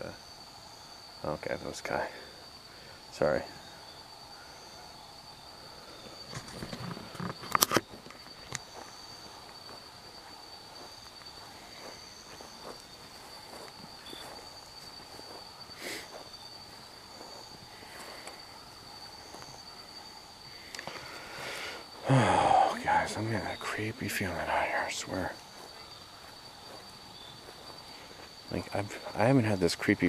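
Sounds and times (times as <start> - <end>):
night insects trilling: 0.0 - 30.0
footsteps on grass: 6.4 - 20.0, 21.9 - 29.0.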